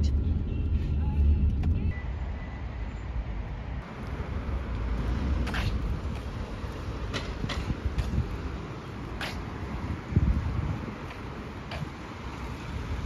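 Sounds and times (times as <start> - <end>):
outdoor street hiss: 1.9 - 13.0
footsteps on wet concrete: 3.9 - 12.8.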